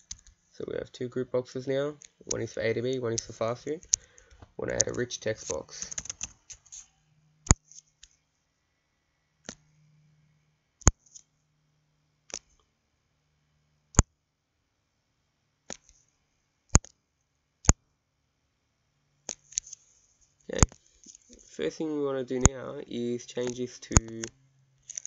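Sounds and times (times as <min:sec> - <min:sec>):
computer mouse clicking: 0:00.0 - 0:00.4, 0:03.1 - 0:08.2, 0:19.3 - 0:19.8, 0:23.4 - 0:25.0.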